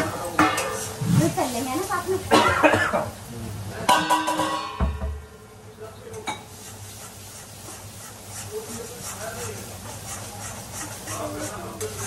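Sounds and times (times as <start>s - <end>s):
metal kitchenware clanking: 0.0s - 1.4s, 3.9s - 5.2s
ladle stirring in metal pot: 0.0s - 2.1s, 6.2s - 12.0s.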